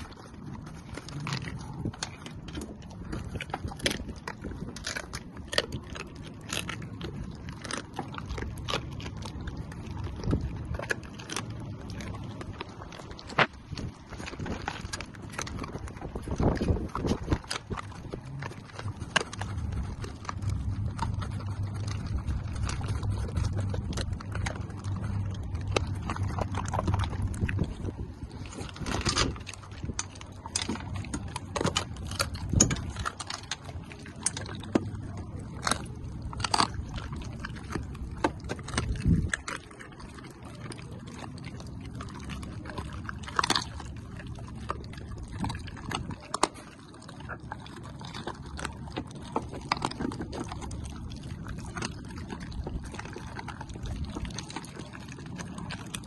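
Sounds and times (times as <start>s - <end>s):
dogs chewing and crunching: 0.0s - 56.0s
low steady rumble: 0.0s - 56.0s
kibble clicking against metal bowls: 28.8s - 39.5s.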